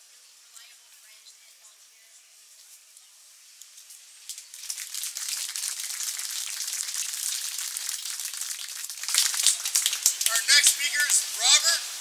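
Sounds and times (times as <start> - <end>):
crowd applauding: 4.5 - 11.8.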